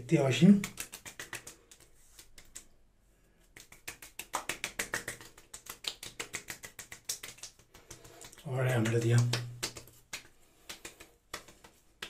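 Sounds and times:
hands patting scalp: 0.0s - 2.8s, 3.4s - 12.0s.

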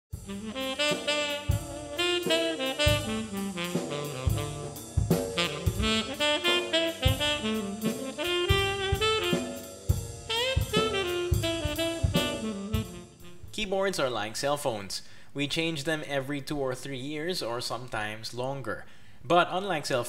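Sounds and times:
steady drum beat: 0.1s - 13.7s
instrumental melody: 0.2s - 13.6s.

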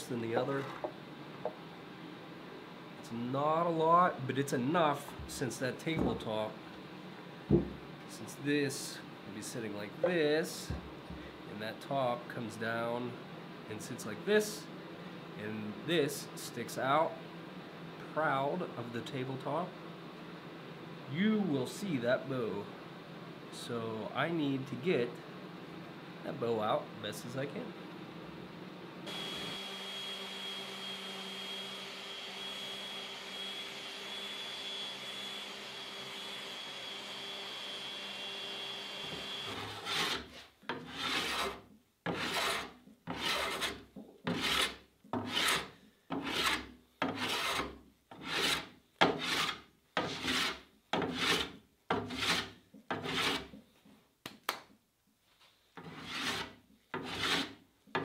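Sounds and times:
hum with high whine: 0.0s - 39.8s
tool scraping wood: 0.4s - 1.0s, 39.0s - 53.6s, 55.8s - 58.0s.

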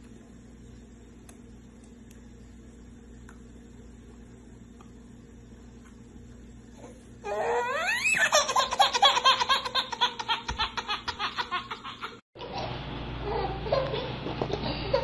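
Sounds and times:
baby squealing: 7.2s - 10.0s
baby belly laughing: 7.4s - 12.2s, 13.2s - 15.0s.

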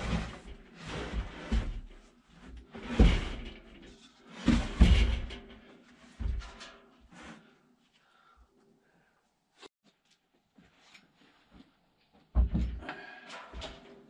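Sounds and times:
dull thuds: 0.0s - 6.6s
scraping and rustling: 0.0s - 7.6s.

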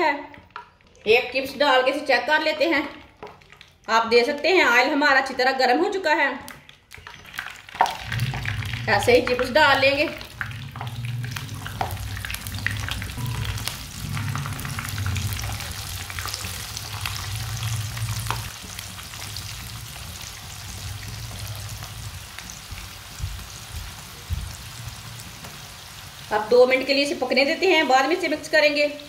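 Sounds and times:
potato sticks sizzling in oil: 7.0s - 29.0s
low hum: 8.0s - 16.2s.

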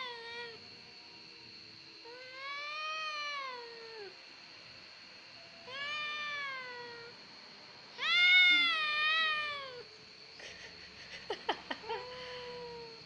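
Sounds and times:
kitten meowing: 8.0s - 9.8s.

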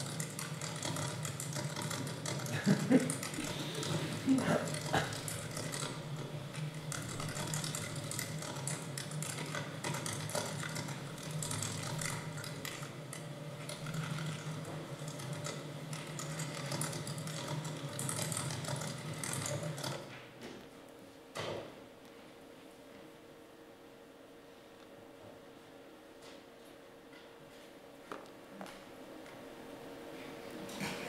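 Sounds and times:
ratchet-like mechanical clicking: 0.0s - 6.1s
steady low hum: 0.0s - 31.0s.

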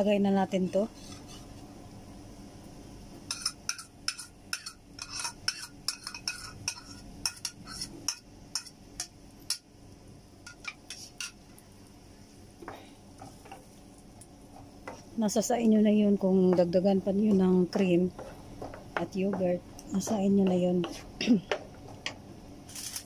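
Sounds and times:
utensil clinking and scraping bowl: 0.6s - 1.5s, 3.3s - 9.6s, 17.3s - 23.0s.

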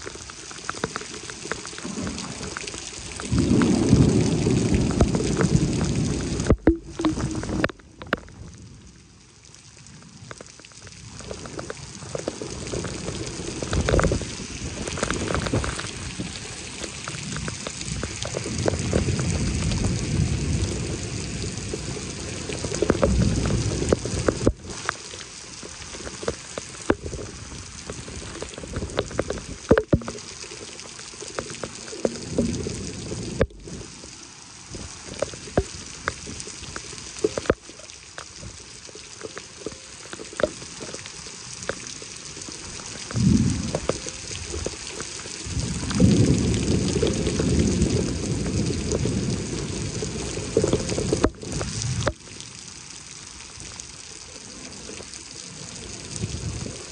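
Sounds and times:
heavy rain falling: 0.0s - 56.9s
raindrops ticking and splashing: 0.0s - 56.9s
thunder rumbles: 3.3s - 7.7s, 43.1s - 44.0s, 45.4s - 52.0s.

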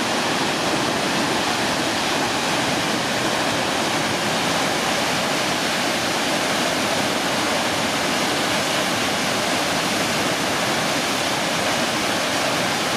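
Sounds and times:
waterfall rushing onto rocks: 0.0s - 12.9s.

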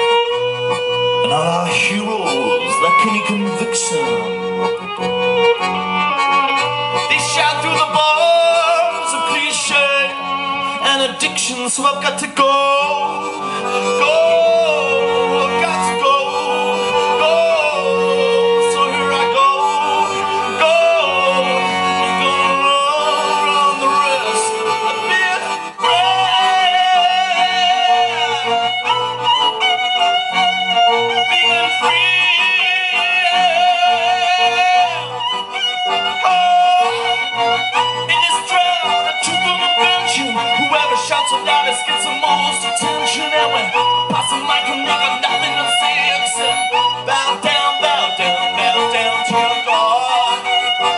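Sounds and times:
violin melody: 0.0s - 50.9s.

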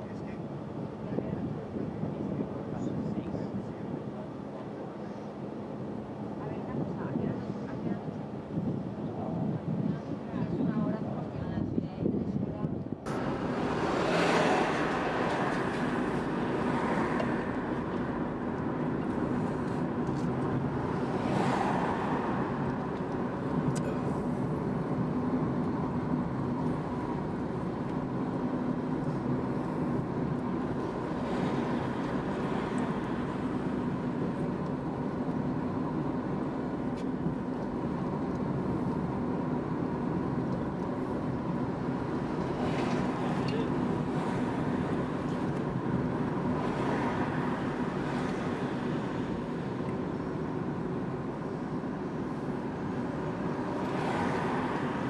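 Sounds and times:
car road and engine noise: 0.0s - 55.0s
vehicles passing: 13.1s - 55.0s.

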